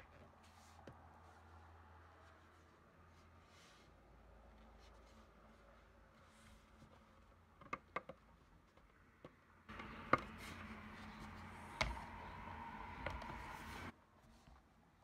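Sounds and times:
hands rubbing plastic case: 9.7 - 13.9.

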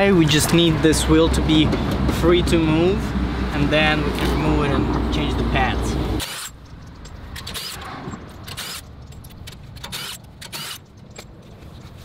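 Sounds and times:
metallic clinks and knocks: 6.4 - 12.0.

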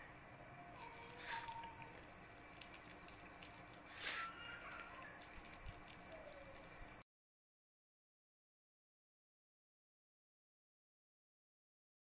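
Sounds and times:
high-pitched insect trill: 0.3 - 7.0.

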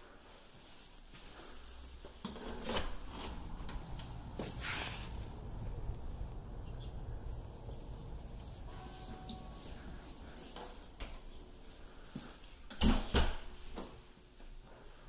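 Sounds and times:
low outdoor background: 1.3 - 13.6
door opening: 2.3 - 13.6.

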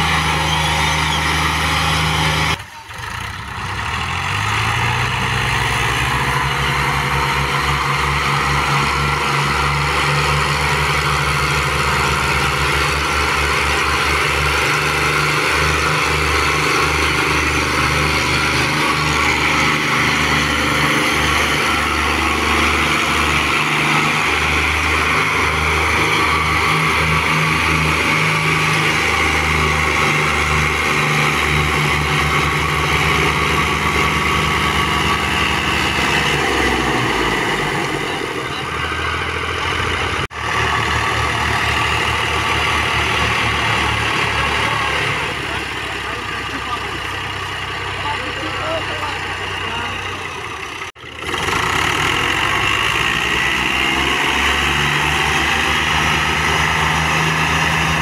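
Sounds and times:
tractor diesel engines under load: 0.0 - 58.0.

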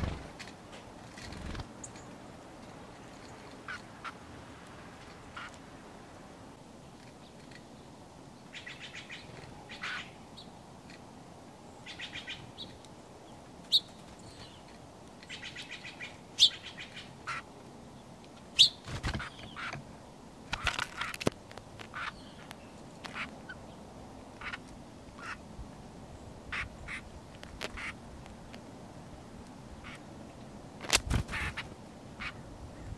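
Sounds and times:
songbirds chipping and chattering: 0.0 - 5.8, 6.5 - 32.9.

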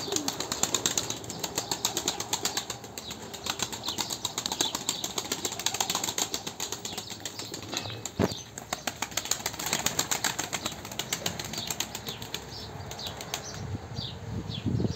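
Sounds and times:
pigeon wings flapping: 0.0 - 13.5.

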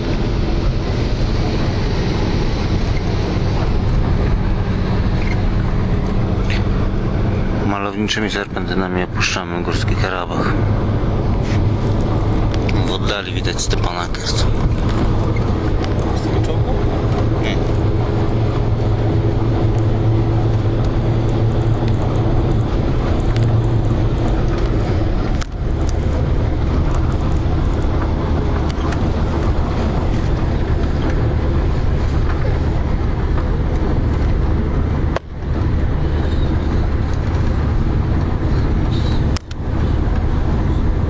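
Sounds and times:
minibus engine drone: 0.0 - 41.0.

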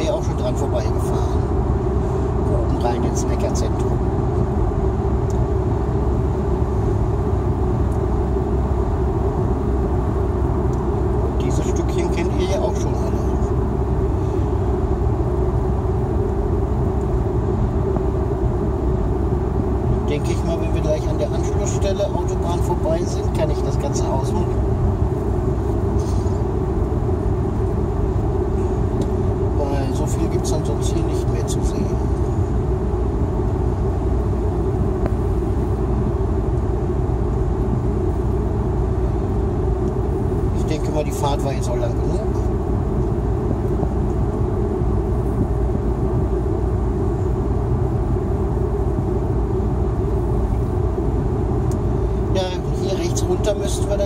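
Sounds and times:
car road noise from cabin: 0.0 - 54.0.

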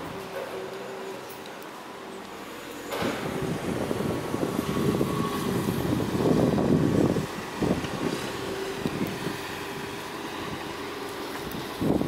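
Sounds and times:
wind gusting on microphone: 2.9 - 12.0.

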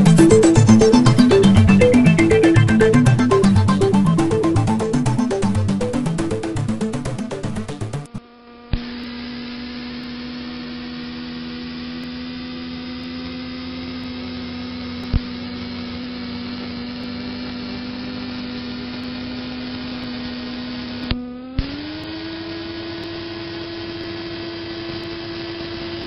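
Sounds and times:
music: 0.0 - 8.2
gyroplane engine and propeller: 0.0 - 26.0.

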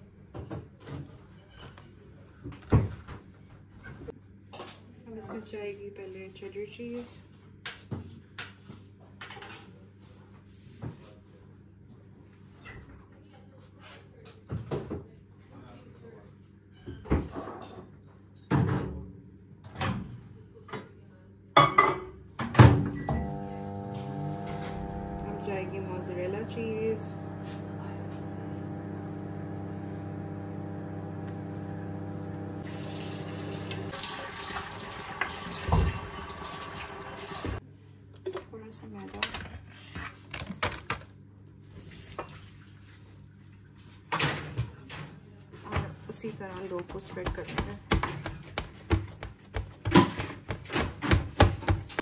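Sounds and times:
low steady hum: 23.0 - 34.0
kitchen knocks and thuds: 46.7 - 52.0.

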